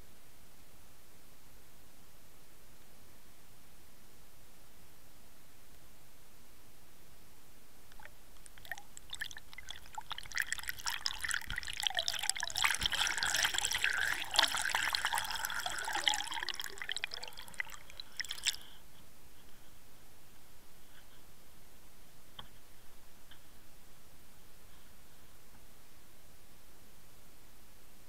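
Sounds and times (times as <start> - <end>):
water gurgling and bubbling: 8.0 - 18.6
water splashing: 8.0 - 18.7.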